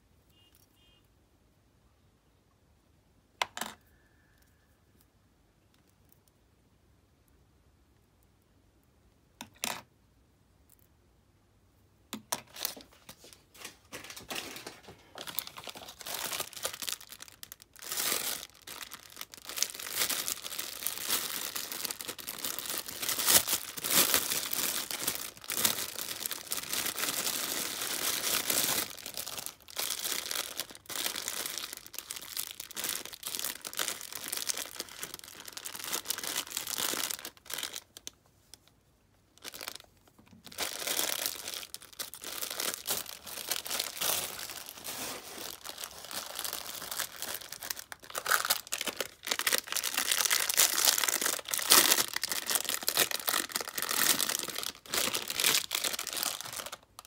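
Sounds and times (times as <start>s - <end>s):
plastic bags crinkling: 12.4s - 38.7s, 39.4s - 57.0s.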